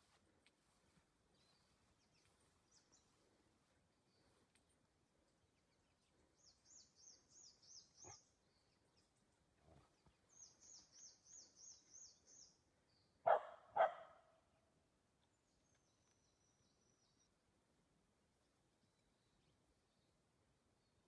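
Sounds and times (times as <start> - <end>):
dog barking: 13.2 - 14.3.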